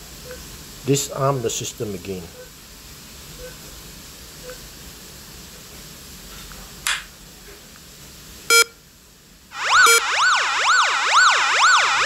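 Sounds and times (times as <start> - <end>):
short beep: 8.5 - 8.7, 9.8 - 10.1
warbling alarm siren: 9.5 - 12.0.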